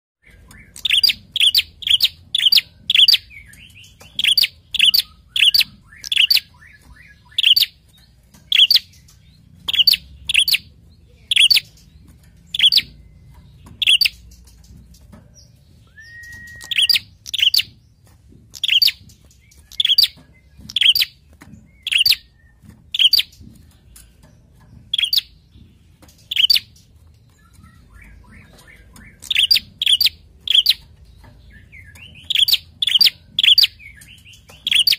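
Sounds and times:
bird chipping calls: 0:00.2 - 0:34.9
bird whistle: 0:15.9 - 0:17.7.

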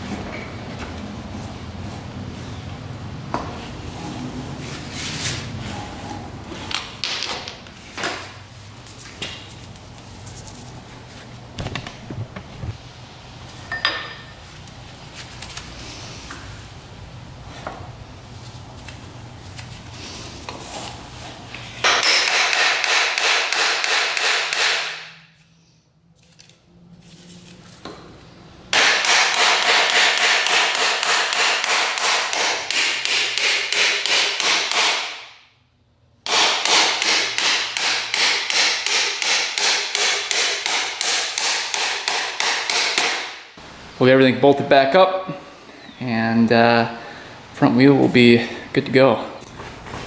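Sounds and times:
hammer on metal rapid blows: 0:28.7 - 0:35.2.

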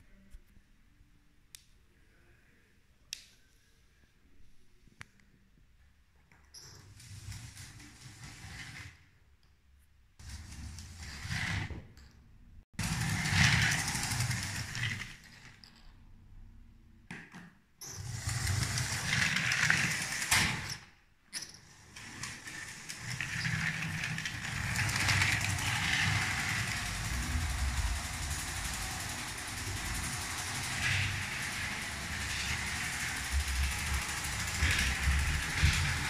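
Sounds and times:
toy train motor whirring: 0:07.0 - 0:08.9, 0:12.8 - 0:15.4, 0:17.8 - 0:20.8, 0:21.5 - 0:36.0.

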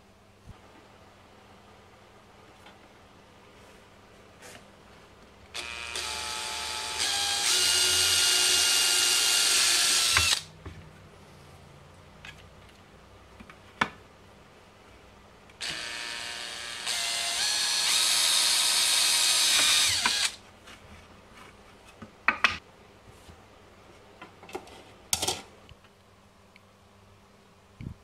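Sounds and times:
cordless drill boring: 0:05.6 - 0:10.5, 0:15.6 - 0:20.4.

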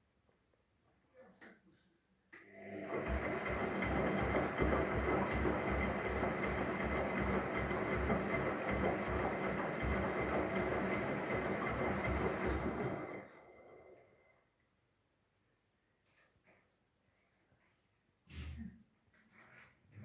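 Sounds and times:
washing machine motor: 0:02.4 - 0:14.3.

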